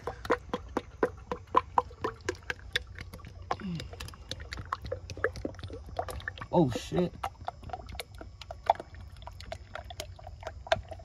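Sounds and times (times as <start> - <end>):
oil glugging from jug: 0.0 - 11.0.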